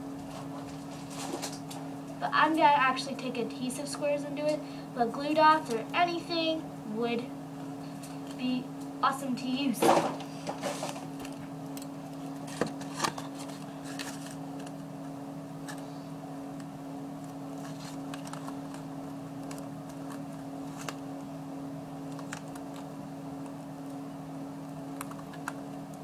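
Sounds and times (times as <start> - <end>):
steady low hum: 0.0 - 26.0
paper crinkles and clicks: 10.6 - 14.8, 17.2 - 21.0, 22.1 - 23.6, 24.9 - 26.0.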